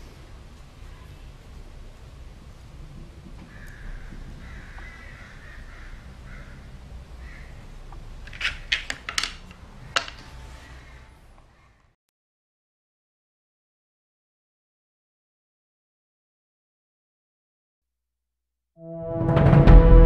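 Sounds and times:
low steady hum: 0.0s - 8.3s
plaster pieces clicking on board: 8.2s - 10.3s.

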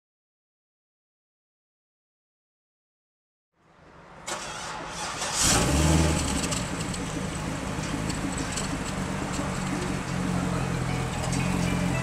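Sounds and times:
car engine starting and idling: 4.0s - 12.0s.

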